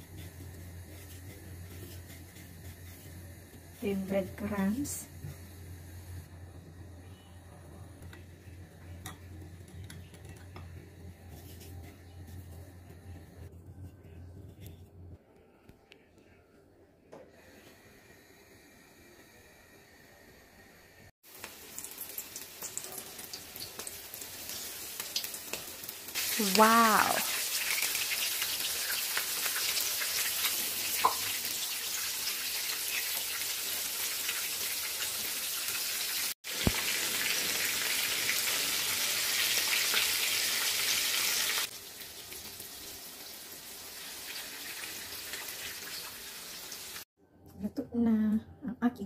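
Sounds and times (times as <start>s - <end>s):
prawns sizzling in hot oil: 21.2s - 47.1s.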